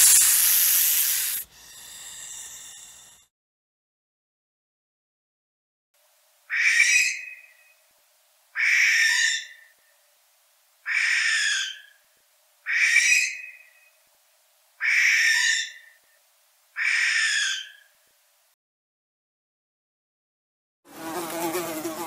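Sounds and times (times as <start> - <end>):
owl screeching: 6.5 - 7.4, 8.6 - 9.6, 10.9 - 11.9, 12.7 - 13.6, 14.8 - 16.0, 16.8 - 17.9.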